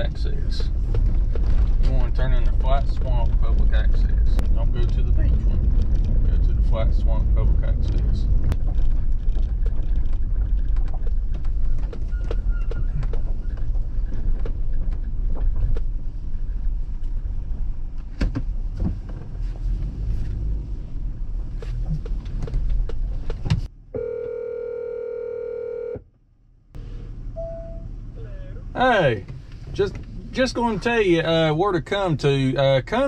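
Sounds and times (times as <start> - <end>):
car engine and road noise: 0.0 - 33.0
phone ringback tone: 24.0 - 26.0.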